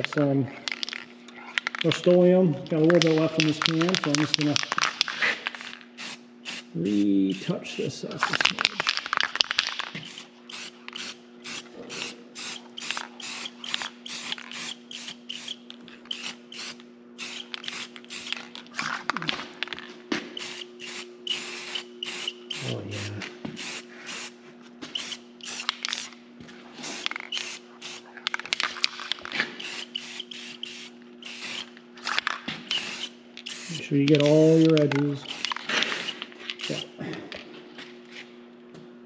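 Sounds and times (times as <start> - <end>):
spray-paint can hissing bursts: 5.6 - 7.0, 10.0 - 18.4, 20.4 - 26.1, 26.8 - 28.0, 29.6 - 31.7, 32.7 - 33.8, 35.3 - 36.9.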